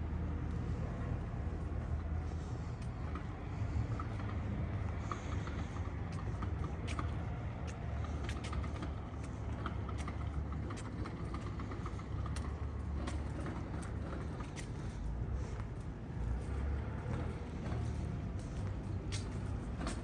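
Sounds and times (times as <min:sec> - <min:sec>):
bus and vehicle engines idling: 0:00.0 - 0:20.0
light clicks and taps: 0:04.0 - 0:14.9.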